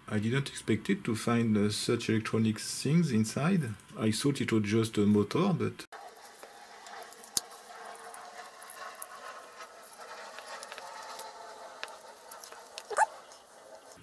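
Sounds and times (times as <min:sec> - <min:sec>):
screwdriver scratching compound: 0:06.0 - 0:14.0.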